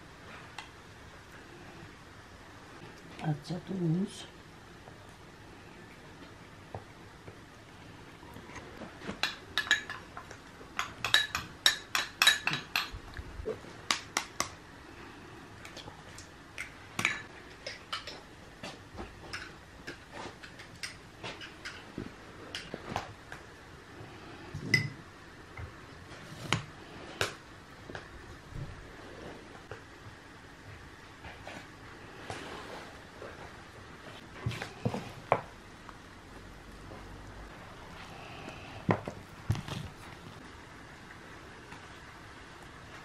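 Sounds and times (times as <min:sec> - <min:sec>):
cutlery clinking against bowls: 0:09.2 - 0:10.1, 0:10.8 - 0:13.0.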